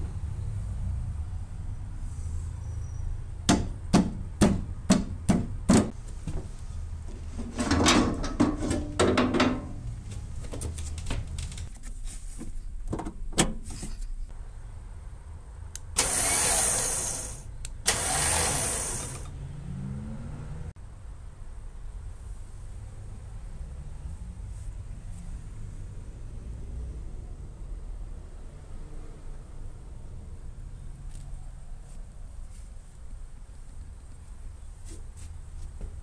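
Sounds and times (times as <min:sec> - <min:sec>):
sharp knocks and clatter: 0:07.4 - 0:09.8
loud rushing bursts: 0:16.0 - 0:19.3.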